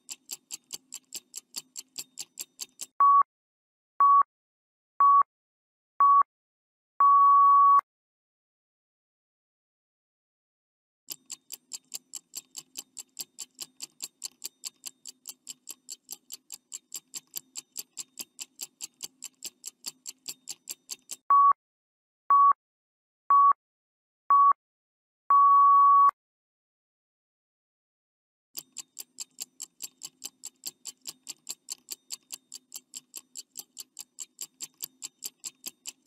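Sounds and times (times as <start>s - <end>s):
clock ticking quickly: 0.0s - 3.0s, 11.1s - 21.3s, 28.6s - 36.0s
long final beep: 7.0s - 7.8s, 25.3s - 26.1s
short electronic beeps: 7.0s - 7.8s, 21.3s - 21.6s, 23.3s - 23.6s, 25.3s - 26.2s.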